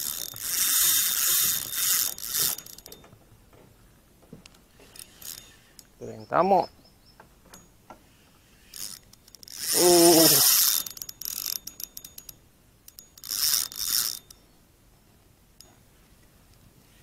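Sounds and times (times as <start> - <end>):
fishing reel clicking and whirring: 0.0 - 3.1, 4.8 - 5.9, 8.5 - 14.4.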